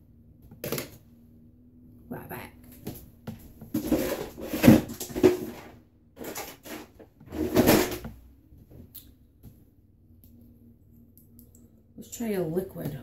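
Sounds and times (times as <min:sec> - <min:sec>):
things being moved and knocked together: 0:02.8 - 0:08.2.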